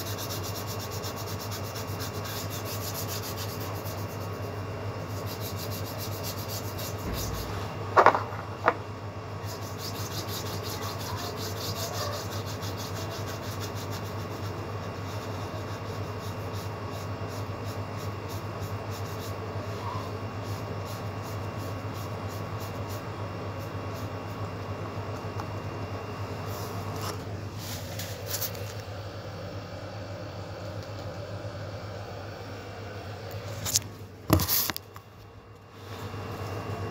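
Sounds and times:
paintbrush rubbing on paper: 0:00.0 - 0:07.6, 0:09.4 - 0:24.4
steady low hum: 0:00.0 - 0:36.9.

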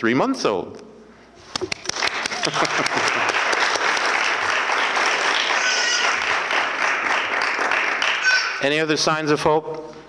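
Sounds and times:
audience applauding: 0:01.6 - 0:08.7.

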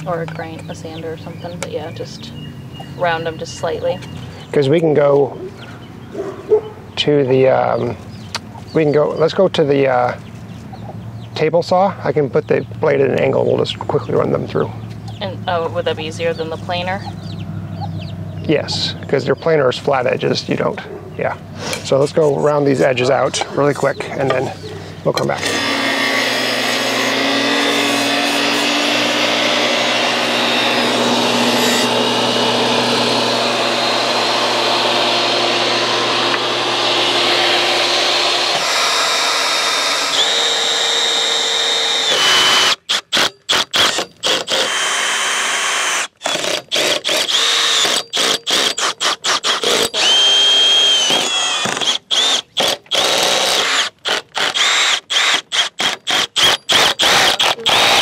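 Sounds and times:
table saw cutting wood: 0:21.6 - 0:58.0
power drill driving screws: 0:25.2 - 0:58.0.

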